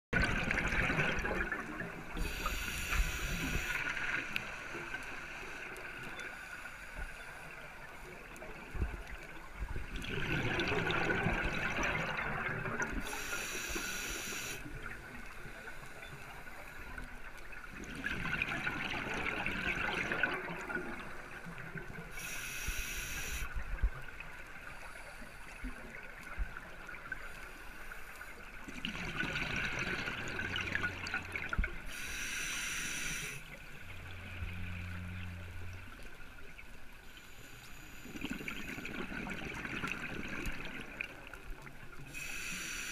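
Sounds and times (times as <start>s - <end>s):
exhaled air bubbling: 0.2s - 4.2s, 8.3s - 15.0s, 17.6s - 24.2s, 28.6s - 35.2s, 38.1s - 41.6s
diver inhaling through regulator: 2.2s - 4.0s, 13.0s - 14.7s, 22.1s - 23.5s, 31.9s - 33.5s, 42.1s - 42.9s.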